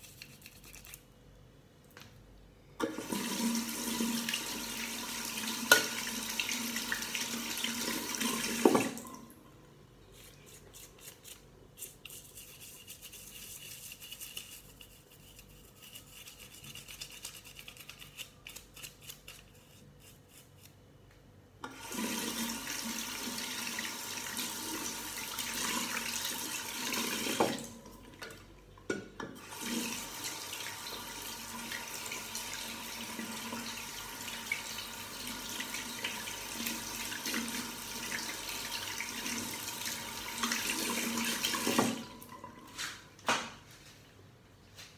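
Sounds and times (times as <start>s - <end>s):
toothbrush scrubbing rubber pad: 0.0s - 1.1s, 10.1s - 20.8s
tap water running into sink: 2.8s - 9.3s, 21.6s - 42.5s.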